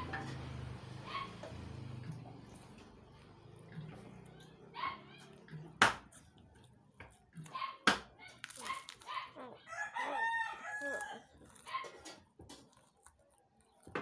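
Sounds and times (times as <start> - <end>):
crackers being chewed: 1.9 - 14.0
rooster crowing: 9.6 - 11.4.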